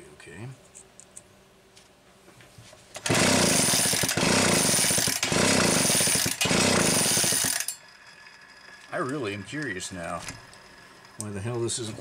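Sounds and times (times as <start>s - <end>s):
chainsaw recoil starter pulls: 3.0s - 7.8s.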